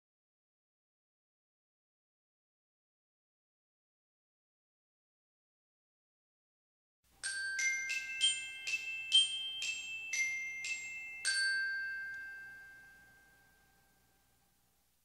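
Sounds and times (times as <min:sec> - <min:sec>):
bell-like timer alarm melody: 0:07.2 - 0:14.1.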